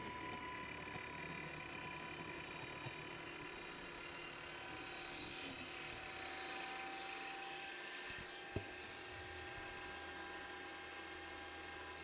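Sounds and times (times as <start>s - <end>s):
table saw cutting foam board: 0.0s - 12.0s.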